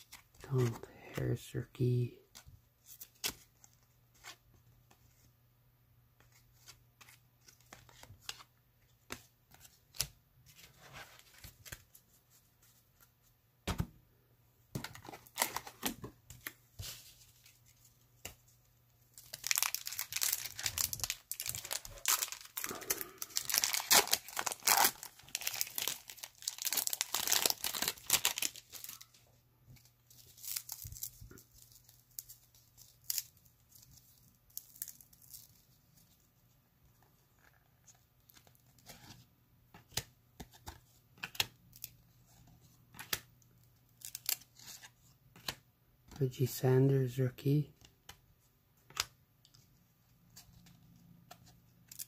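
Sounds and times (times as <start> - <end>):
wrapper crinkling and tearing: 19.2 - 29.2, 30.1 - 35.7.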